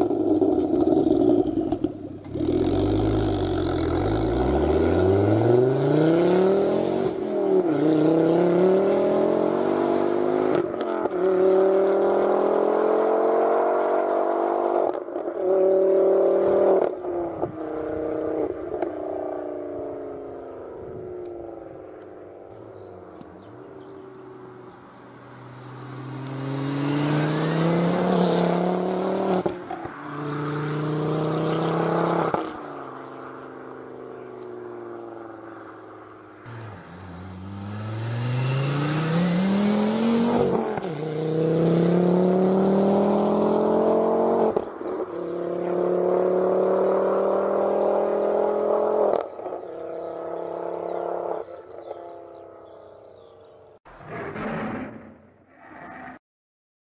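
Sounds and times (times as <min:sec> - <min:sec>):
car engine accelerating hard: 0:00.0 - 0:16.9, 0:25.4 - 0:34.8, 0:36.5 - 0:44.7.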